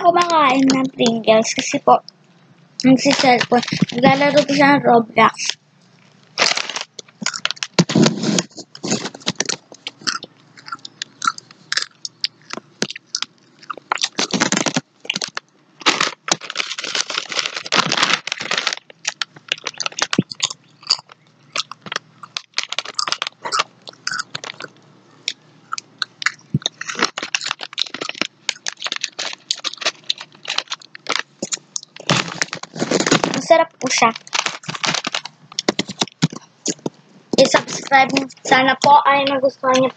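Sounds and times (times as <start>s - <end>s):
potato chips crunching: 6.4s - 38.2s.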